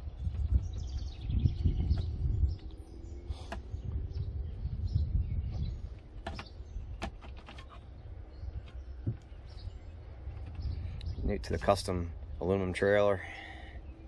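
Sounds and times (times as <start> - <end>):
wind rumbling on microphone: 0.0 - 12.9
sharp clicks or knocks: 6.2 - 7.8.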